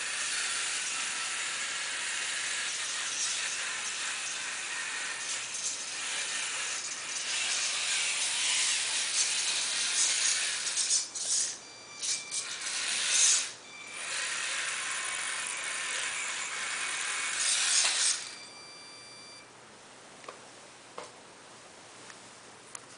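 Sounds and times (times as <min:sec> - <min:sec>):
small electric motor whirring: 0:00.0 - 0:18.5.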